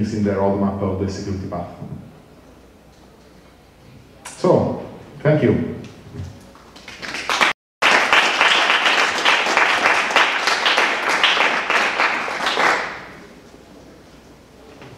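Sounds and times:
audience applauding: 6.6s - 13.2s.

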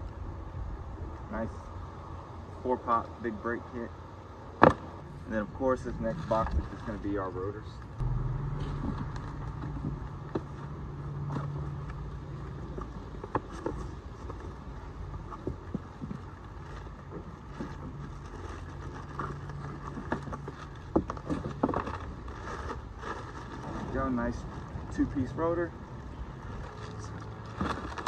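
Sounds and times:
low hum: 7.8s - 13.3s
packaging rustling and crinkling: 17.5s - 25.2s, 26.3s - 28.0s.

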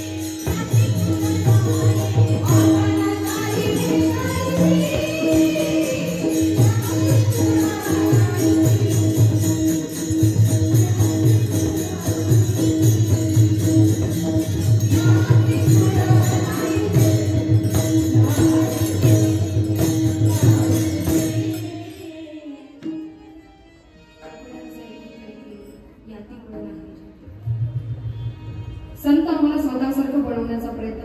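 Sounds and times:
hand cymbals jingling: 0.0s - 22.6s
voices singing a devotional chant: 0.0s - 22.6s.

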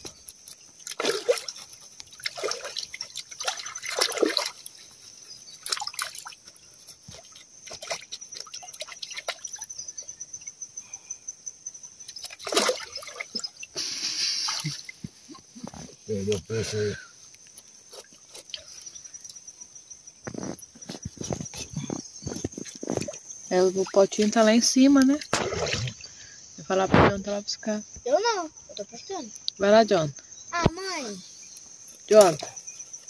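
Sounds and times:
river water splashing: 0.0s - 9.7s, 12.1s - 15.4s, 22.9s - 26.3s.

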